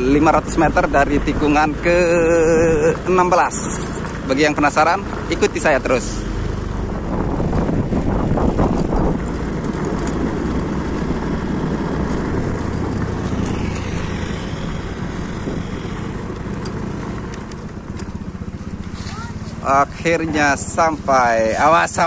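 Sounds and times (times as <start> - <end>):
motorcycle engine running: 0.0 - 22.0
wind rumbling on microphone: 6.5 - 18.9.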